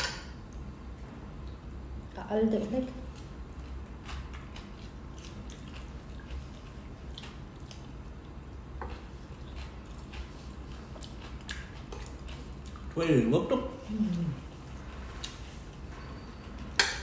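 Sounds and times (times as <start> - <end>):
people chewing: 3.1 - 13.2, 13.8 - 15.9.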